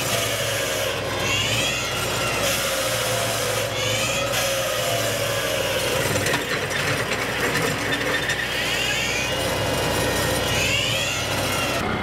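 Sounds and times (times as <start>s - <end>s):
tractor engine running: 0.0s - 12.0s.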